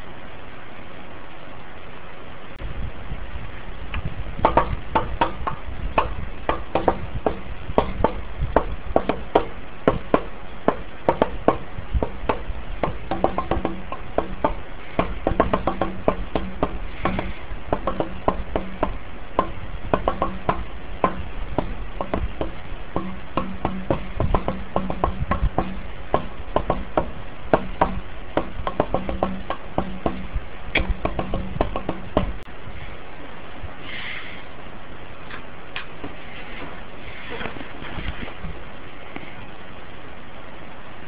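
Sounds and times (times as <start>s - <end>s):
ceiling fan humming: 0.0s - 41.0s
rapid clicking and knocking: 4.4s - 32.5s.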